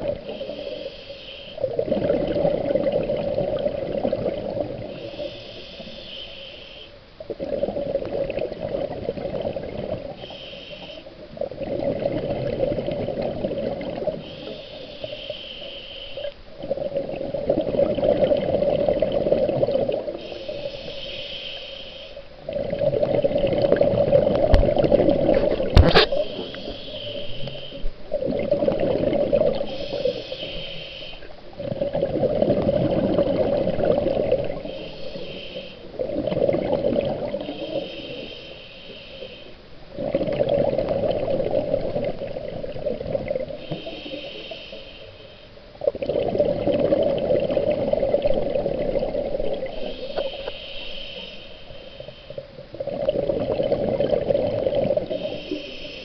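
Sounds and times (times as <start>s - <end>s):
exhaled bubbles gurgling: 0.0s - 6.1s, 7.2s - 15.4s, 16.2s - 21.3s, 22.3s - 56.0s
diver breathing through regulator: 0.2s - 1.6s, 4.9s - 7.0s, 20.2s - 22.3s, 25.4s - 27.9s, 29.5s - 31.4s, 34.5s - 36.0s, 37.4s - 39.6s, 43.6s - 45.6s, 49.5s - 52.5s, 55.0s - 56.0s.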